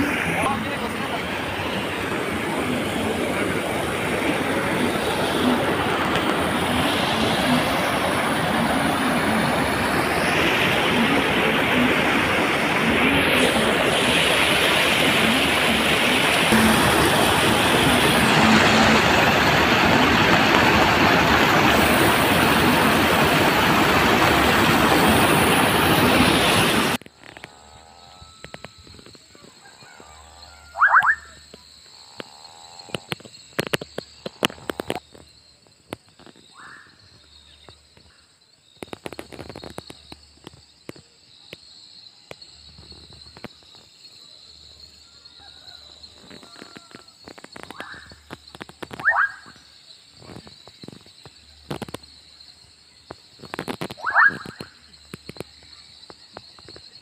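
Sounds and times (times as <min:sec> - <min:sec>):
stream rushing through culvert: 0:00.0 - 0:27.0
frogs calling: 0:00.0 - 0:57.0.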